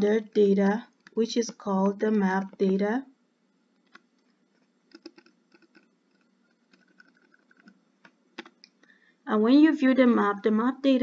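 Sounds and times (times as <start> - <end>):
computer keyboard clicks: 4.9 - 8.8.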